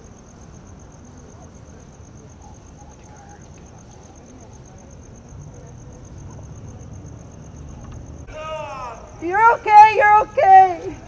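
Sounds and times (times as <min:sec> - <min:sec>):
cricket chirping: 0:00.0 - 0:11.0
faint distant voices: 0:00.0 - 0:11.0
low steady rumble: 0:04.8 - 0:11.0.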